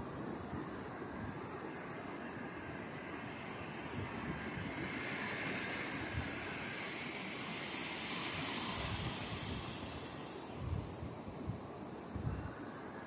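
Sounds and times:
ocean surf breaking: 2.9s - 11.9s
wind buffeting microphone: 8.8s - 12.6s.

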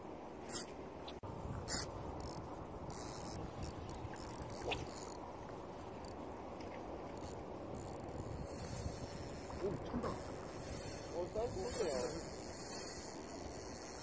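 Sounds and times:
fishing reel clicking: 1.7s - 5.2s, 7.1s - 14.0s.

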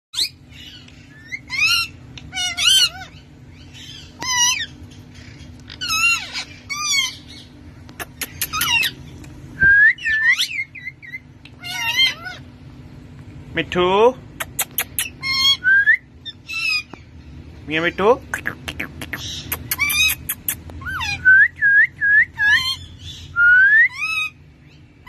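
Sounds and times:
parrots screeching: 0.2s - 9.1s, 10.0s - 12.5s, 14.4s - 17.0s, 19.2s - 21.4s, 22.3s - 24.9s.

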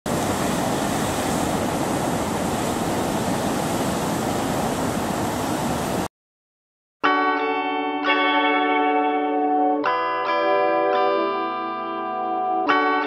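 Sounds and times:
ocean surf breaking over rocks: 0.1s - 6.1s.

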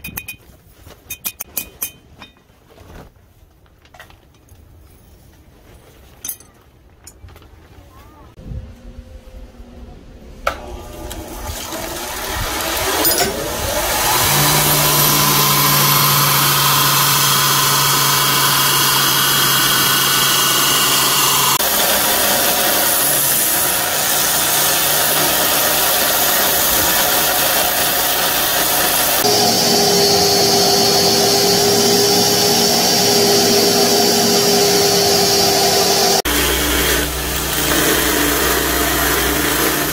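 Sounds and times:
grinder motor hum: 8.5s - 39.9s
belt grinding steel: 10.8s - 39.9s.

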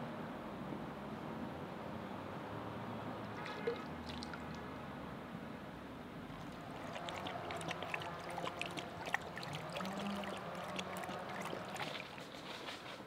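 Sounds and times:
water trickling and splashing: 3.2s - 4.7s, 6.3s - 13.0s
water drips and plops: 3.3s - 4.7s, 6.4s - 12.7s.

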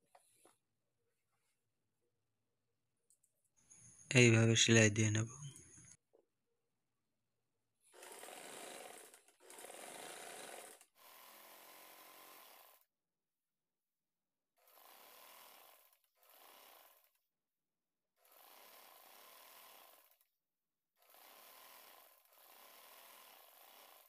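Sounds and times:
faint sewing machine stitching: 7.8s - 12.9s, 14.6s - 17.3s, 18.2s - 20.3s, 21.0s - 24.0s.

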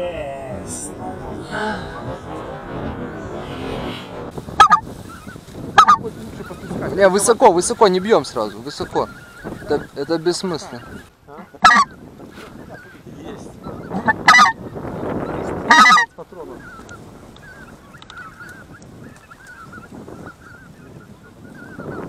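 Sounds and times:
flock of geese calling: 4.6s - 13.0s, 13.6s - 14.6s, 15.3s - 22.0s
loud goose honks: 11.5s - 11.9s, 14.1s - 14.6s, 15.7s - 16.1s.

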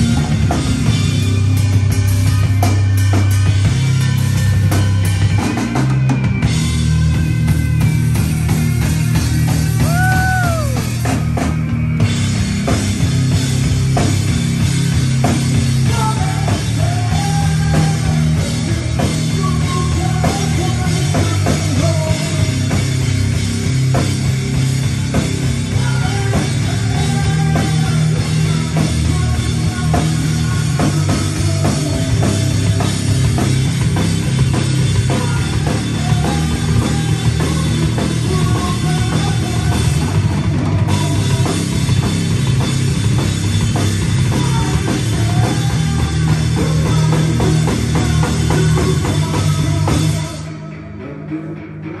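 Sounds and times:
bass guitar: 0.0s - 52.0s
drum kit: 0.0s - 52.0s
electric guitar: 0.0s - 52.0s.

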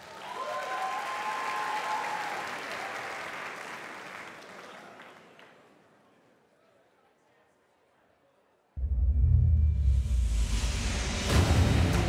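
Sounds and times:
audience cheering: 0.0s - 4.8s
audience applauding: 0.0s - 5.7s.

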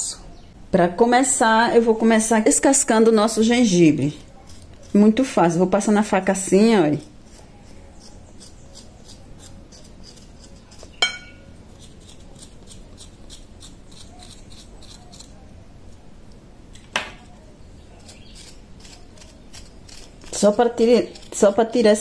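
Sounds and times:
knife scraping ginger skin: 3.3s - 16.1s, 17.2s - 22.0s
sharp clinks: 11.0s - 11.5s.

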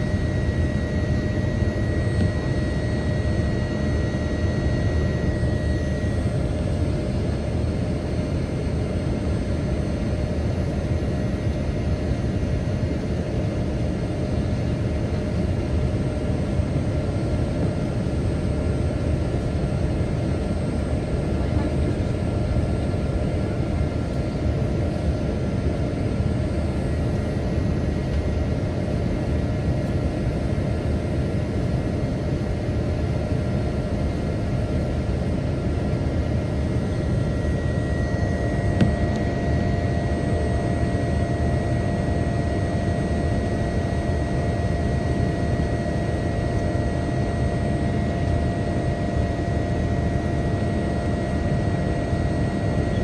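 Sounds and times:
high whine: 0.0s - 8.5s, 34.6s - 50.4s
jet engine roar: 0.0s - 29.8s, 32.3s - 53.0s.

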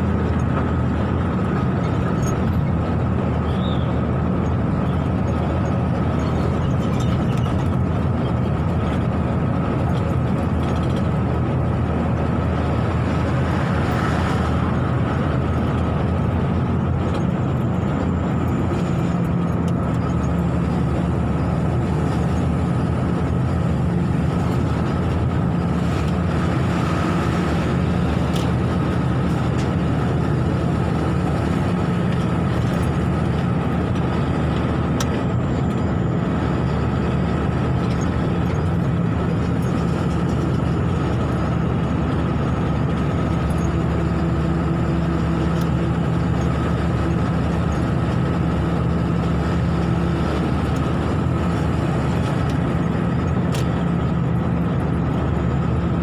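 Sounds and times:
engine and road noise drone: 0.0s - 56.0s.

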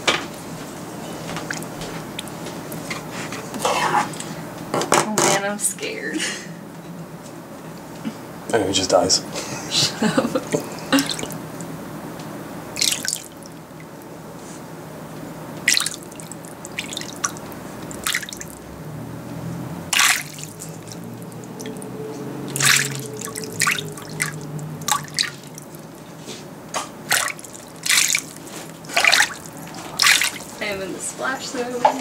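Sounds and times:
water splashing in plastic tub: 1.3s - 2.8s, 11.0s - 11.4s, 12.8s - 13.9s, 15.6s - 18.7s, 19.9s - 26.1s, 27.0s - 30.9s.

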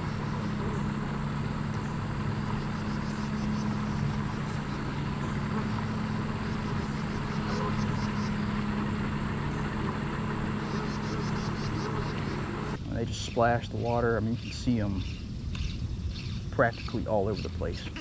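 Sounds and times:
low motor hum: 0.0s - 12.8s.

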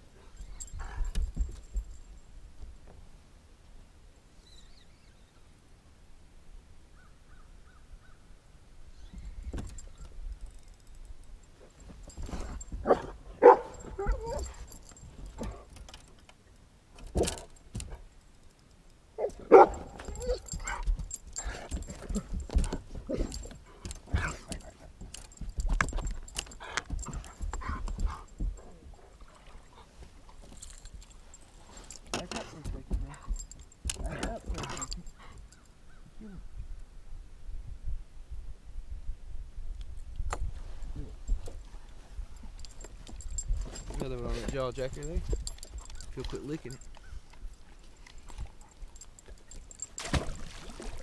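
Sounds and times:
dog barking: 12.9s - 14.5s, 19.2s - 20.8s.

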